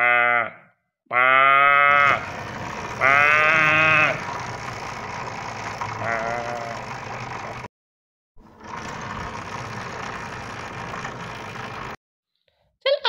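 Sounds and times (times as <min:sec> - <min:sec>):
truck engine running: 0:02.0 - 0:07.7, 0:08.4 - 0:12.0.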